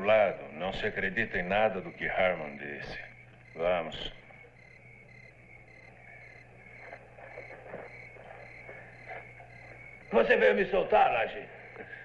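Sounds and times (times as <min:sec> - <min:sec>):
crickets chirping: 0:00.0 - 0:12.0
low steady hum: 0:00.0 - 0:12.0
footsteps on dirt: 0:05.8 - 0:10.3.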